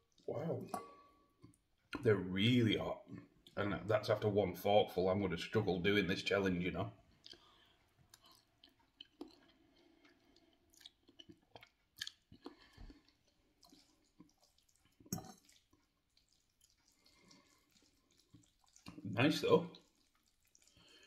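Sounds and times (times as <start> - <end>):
person chewing and slurping noodles: 7.1 - 19.1, 19.7 - 21.0.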